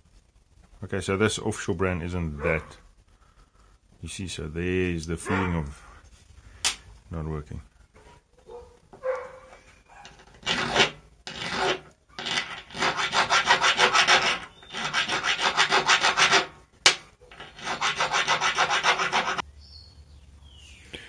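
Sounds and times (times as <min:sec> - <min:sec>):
hand file rasping on metal: 0:10.0 - 0:19.4.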